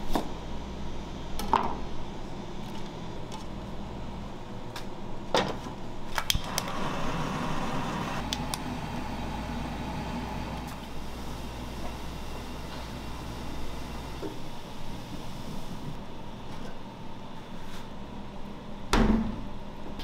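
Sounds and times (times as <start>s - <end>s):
gas burner flame rushing: 6.3s - 16.0s.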